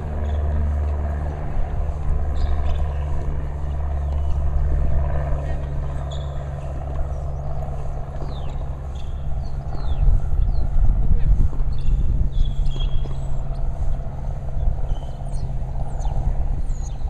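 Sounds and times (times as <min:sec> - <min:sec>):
low rumble of road traffic: 0:00.0 - 0:17.0
high falling bird chirps: 0:06.0 - 0:07.5, 0:14.8 - 0:17.0.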